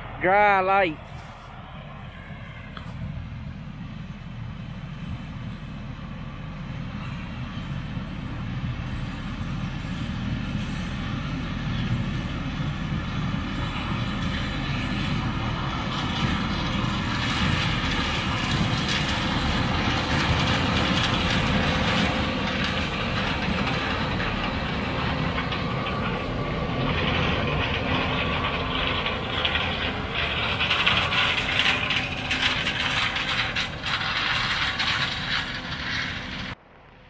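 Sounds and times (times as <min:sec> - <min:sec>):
combine engine hum: 0:00.0 - 0:37.0
mechanical rattle: 0:16.0 - 0:36.6.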